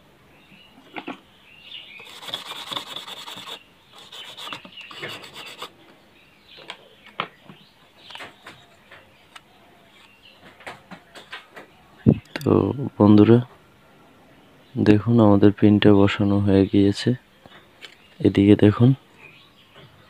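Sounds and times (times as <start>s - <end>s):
fast scratchy rubbing: 2.0s - 5.8s.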